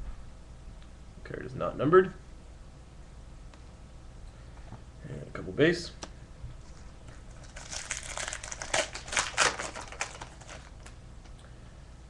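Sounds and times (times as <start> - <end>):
foil wrapper crinkling: 7.3 - 11.0.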